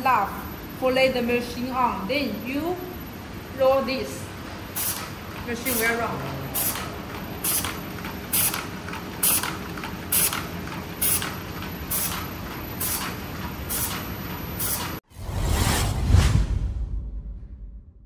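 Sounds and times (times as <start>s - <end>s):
short hiss-like bursts: 4.8s - 5.9s
machine mechanical clatter: 4.8s - 15.0s
whoosh sound effect: 15.1s - 17.8s.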